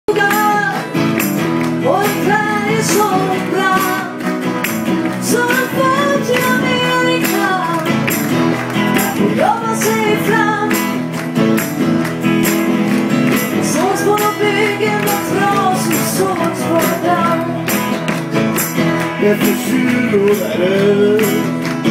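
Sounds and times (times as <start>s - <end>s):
acoustic guitars strummed: 0.1s - 21.9s
people singing: 1.8s - 4.2s, 8.8s - 10.7s, 13.6s - 17.7s, 19.1s - 21.9s.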